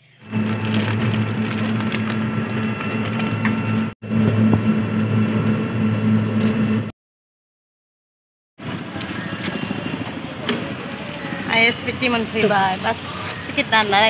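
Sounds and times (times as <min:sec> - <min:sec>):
vehicle engine droning: 0:00.0 - 0:06.9.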